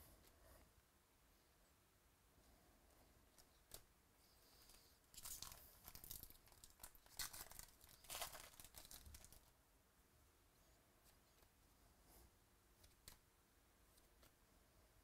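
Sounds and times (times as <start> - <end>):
wrapper tearing and crinkling: 5.1 - 9.5.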